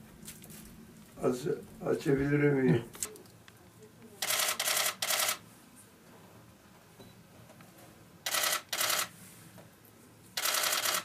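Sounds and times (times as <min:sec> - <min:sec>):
camera shutter clicking: 0:04.2 - 0:05.4, 0:08.3 - 0:09.1, 0:10.4 - 0:11.0.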